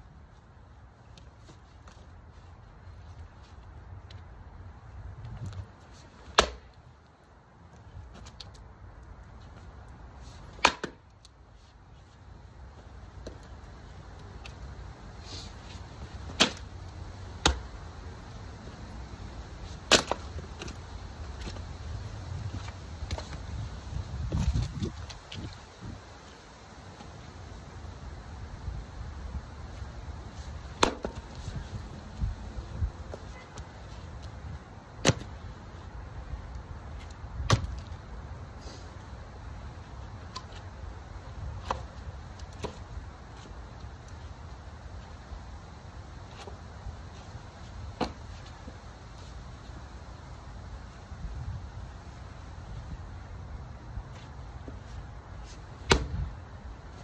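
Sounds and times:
axe chopping log: 6.3 - 6.7, 10.5 - 11.1, 16.3 - 16.7, 17.4 - 17.7, 19.8 - 20.7, 30.8 - 31.4, 35.0 - 35.3, 37.4 - 37.8, 48.0 - 48.2, 55.8 - 56.3
wooden knocks of firewood: 10.5 - 11.1, 30.8 - 31.4, 35.0 - 35.3, 37.4 - 37.9, 48.0 - 48.2, 55.8 - 56.3.

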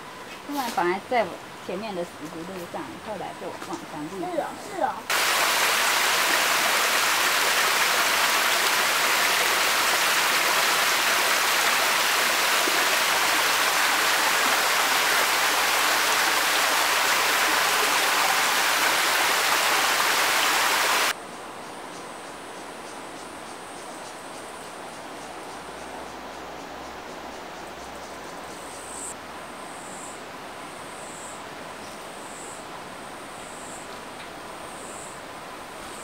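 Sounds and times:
faint hiss: 4.2 - 21.5
stream water rushing: 5.1 - 21.2.

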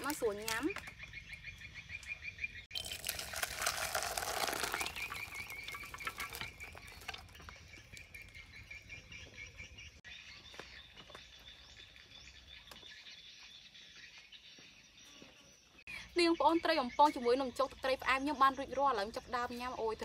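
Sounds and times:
frogs trilling: 0.0 - 9.6.

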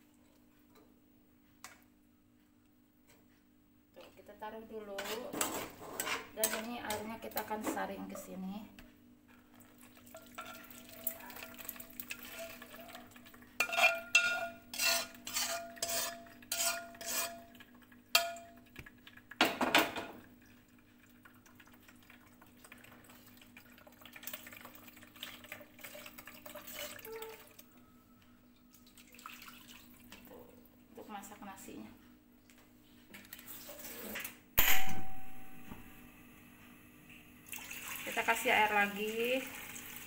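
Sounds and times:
metal utensils clinking on wok: 10.1 - 13.0, 13.6 - 17.5, 18.2 - 18.6.

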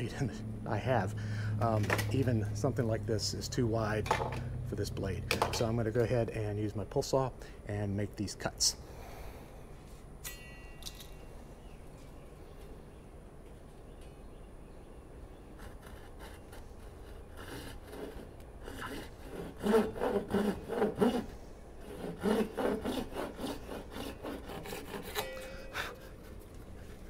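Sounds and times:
saw cutting plastic: 15.4 - 26.2.

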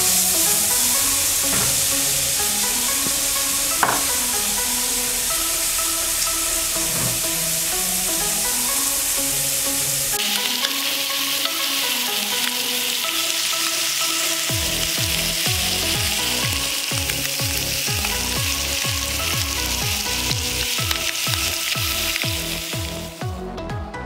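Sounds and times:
fish sizzling in oil: 0.0 - 23.2
background music: 0.0 - 24.0
deep bass beat: 14.5 - 24.0.

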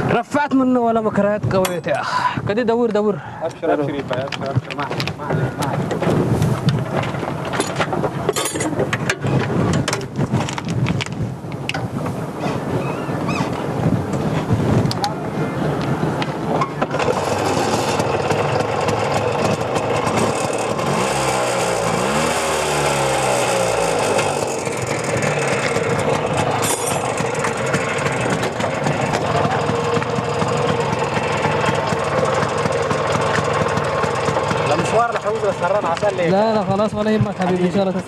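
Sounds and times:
auto-rickshaw engine idling: 16.7 - 38.0.

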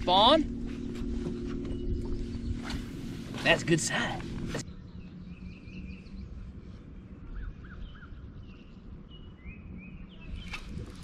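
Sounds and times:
birds chirping and calling: 0.0 - 6.4
low background rumble: 0.0 - 11.0.

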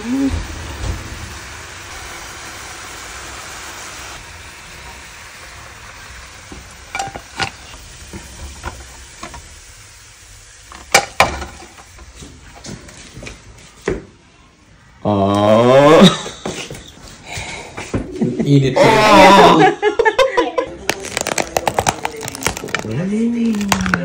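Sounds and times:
sauce sizzling in a metal pan: 0.0 - 13.2
wooden spoon knocking on pan: 10.7 - 11.7.

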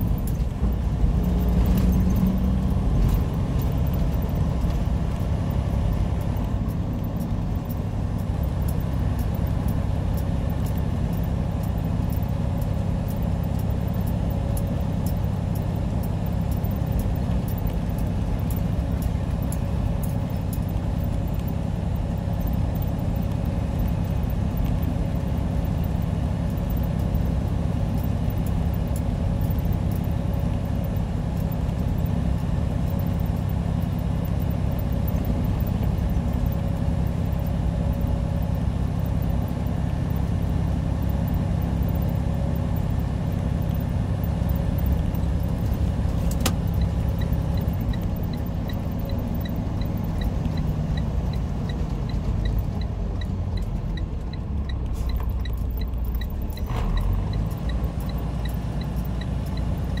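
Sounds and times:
truck engine and road drone: 0.0 - 60.0.

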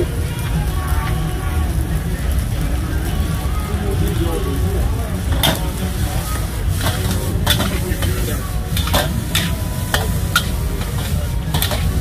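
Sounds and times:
utensils clinking and scraping: 5.2 - 12.0.

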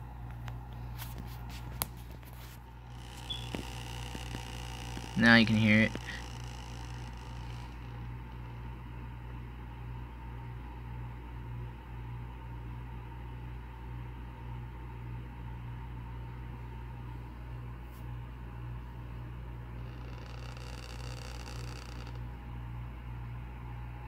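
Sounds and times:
snake tail buzzing against wall: 1.5 - 8.1, 19.8 - 22.3.

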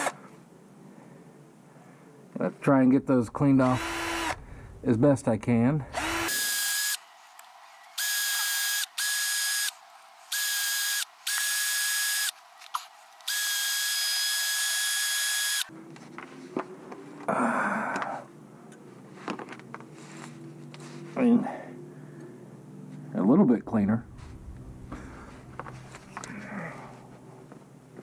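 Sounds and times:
drill wire brush whine: 3.7 - 4.4, 5.9 - 15.7.

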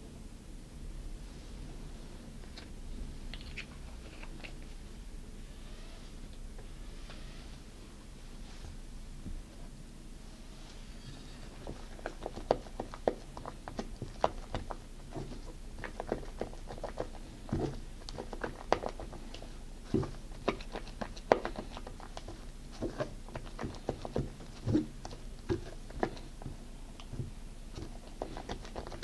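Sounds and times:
spatula squelching meringue: 11.4 - 29.0.

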